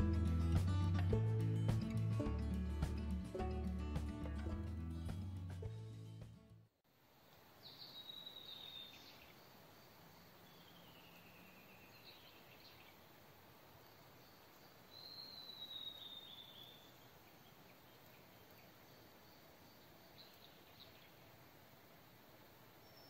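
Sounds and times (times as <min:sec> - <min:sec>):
woodland ambience: 0:06.8 - 0:23.0.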